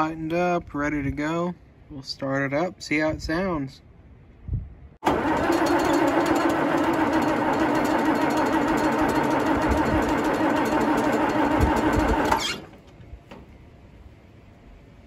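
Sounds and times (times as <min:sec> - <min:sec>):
diesel tractor engine running: 0:05.0 - 0:12.9.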